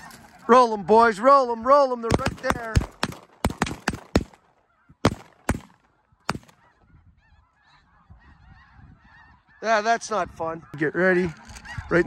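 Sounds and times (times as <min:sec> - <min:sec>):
flock of geese calling: 0:00.0 - 0:12.0
shotgun shots: 0:02.0 - 0:06.6.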